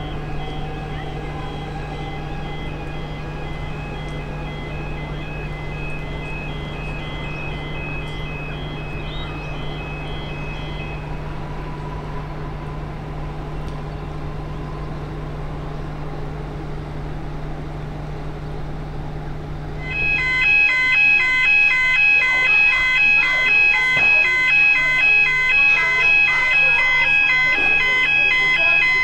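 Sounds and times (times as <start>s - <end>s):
rapid electronic beeping: 0.0s - 11.4s, 19.8s - 29.0s
electric train humming: 0.0s - 29.0s
faint train whine: 0.0s - 29.0s.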